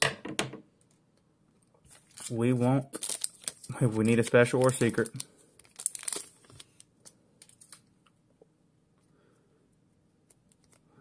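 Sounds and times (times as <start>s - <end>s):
foil pack crinkling: 1.9s - 7.8s.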